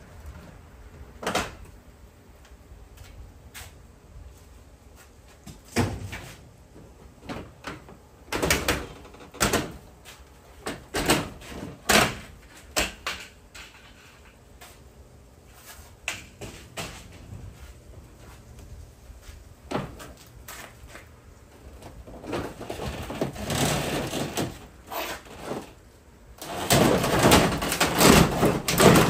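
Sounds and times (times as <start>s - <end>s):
demolition knocks and bangs: 26.5s - 29.0s.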